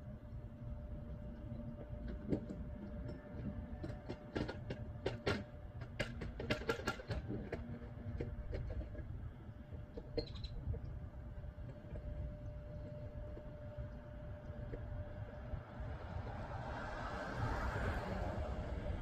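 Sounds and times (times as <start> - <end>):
sharp irregular clicks and knocks: 1.4 - 11.0
faint steady hum: 7.2 - 19.0.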